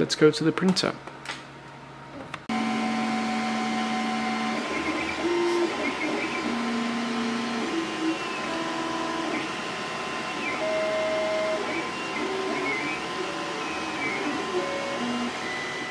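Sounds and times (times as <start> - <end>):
fan whirring: 0.0 - 15.9
stepper motors whining: 2.5 - 15.9.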